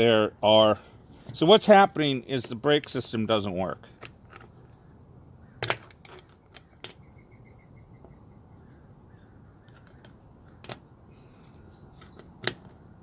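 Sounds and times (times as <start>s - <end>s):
faint bird chirps: 6.6s - 12.3s.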